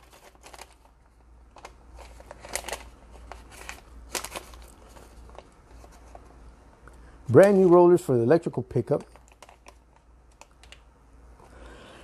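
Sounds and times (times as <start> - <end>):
packaging rustling: 0.0 - 6.3, 7.3 - 8.1, 8.8 - 10.8.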